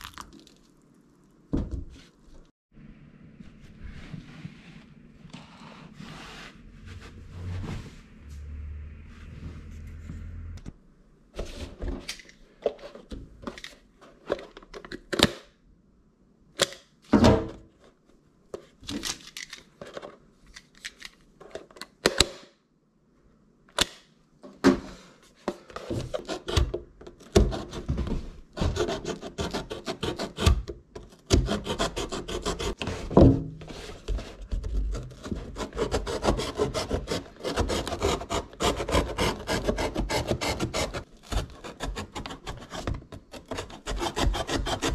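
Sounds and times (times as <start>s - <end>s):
blade sawing through cardboard: 28.6s - 30.6s, 31.3s - 32.9s, 34.9s - 44.9s.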